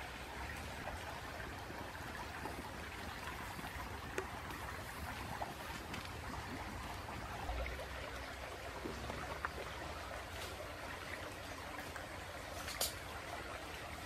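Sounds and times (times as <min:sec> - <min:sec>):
campfire crackling: 0:00.1 - 0:14.0.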